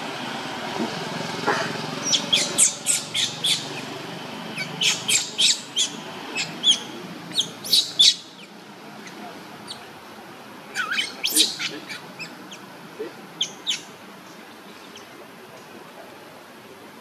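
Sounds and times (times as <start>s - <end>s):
baby monkey squeaking: 2.0s - 3.9s, 4.6s - 8.5s, 10.7s - 12.5s.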